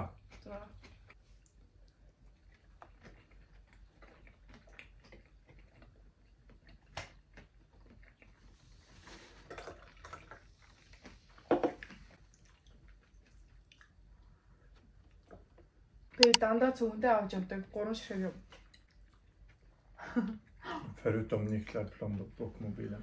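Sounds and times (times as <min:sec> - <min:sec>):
quiet chewing: 0:00.0 - 0:16.4, 0:18.3 - 0:20.6
cola pouring and fizzing: 0:09.2 - 0:10.7
chopsticks clicking: 0:16.2 - 0:16.4.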